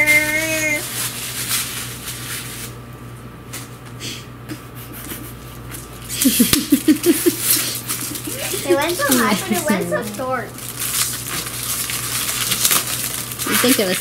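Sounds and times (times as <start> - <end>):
gift wrap rustling and crinkling: 0.8 - 2.8, 5.2 - 14.0
burst of laughter: 6.1 - 10.0.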